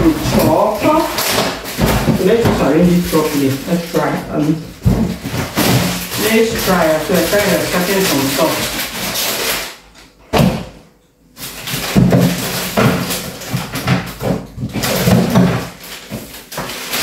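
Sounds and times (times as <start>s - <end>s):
fridge door shutting: 0.0s - 8.6s
items clattering and rustling: 0.0s - 17.0s.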